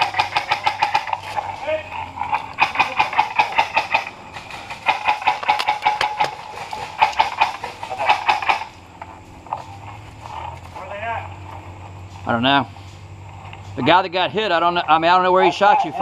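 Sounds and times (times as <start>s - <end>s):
airsoft rifles firing rapid bursts: 0.0s - 1.2s, 2.6s - 8.7s.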